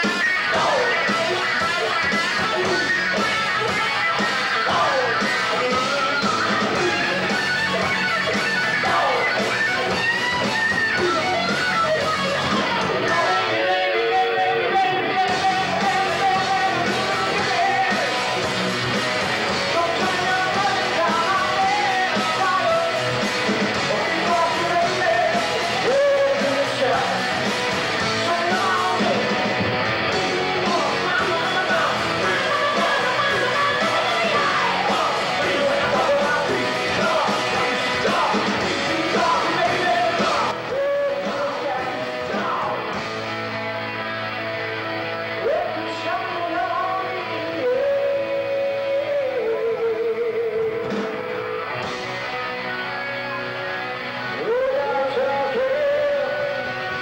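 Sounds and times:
person singing: 0.0s - 3.4s, 4.1s - 7.6s, 8.3s - 9.9s, 12.6s - 18.4s, 19.6s - 23.2s, 23.8s - 27.2s, 28.2s - 29.4s, 30.2s - 42.9s, 45.4s - 51.1s, 54.3s - 57.0s
rock band playing live: 0.0s - 57.0s.

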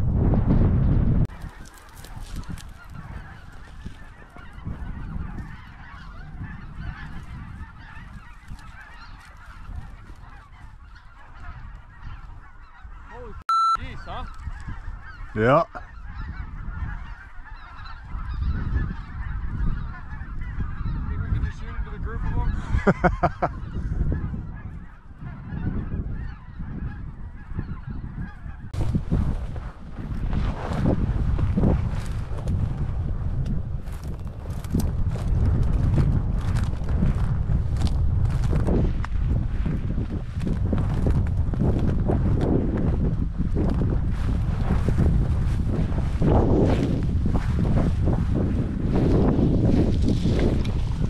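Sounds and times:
wind rumbling on microphone: 0.0s - 51.0s
geese honking: 1.3s - 28.7s.

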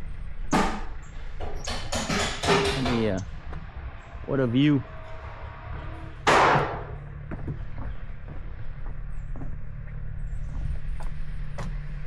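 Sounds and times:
low steady hum: 2.4s - 12.0s
footsteps on wooden boards: 6.3s - 12.0s.

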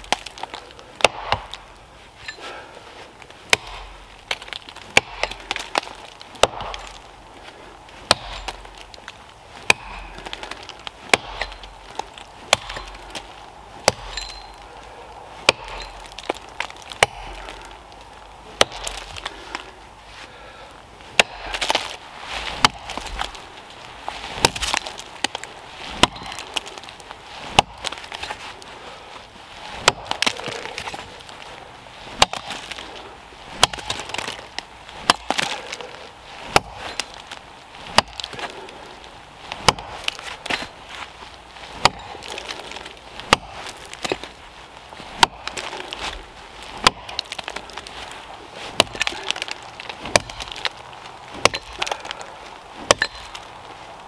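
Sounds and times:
axe chopping into wood: 0.0s - 1.7s, 3.5s - 7.0s, 8.0s - 14.6s, 15.4s - 17.8s, 18.6s - 19.7s, 21.1s - 23.4s, 24.4s - 26.8s, 27.5s - 28.4s, 29.8s - 31.0s, 32.2s - 32.9s, 33.6s - 35.9s, 36.5s - 37.3s, 37.9s - 38.7s, 39.5s - 40.8s, 41.8s - 44.4s, 45.2s - 46.2s, 46.8s - 47.8s, 48.7s - 53.4s.

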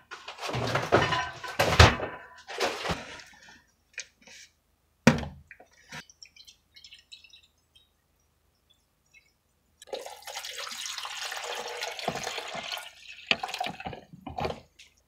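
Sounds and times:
water dripping and splashing: 5.5s - 8.0s, 8.7s - 14.1s.

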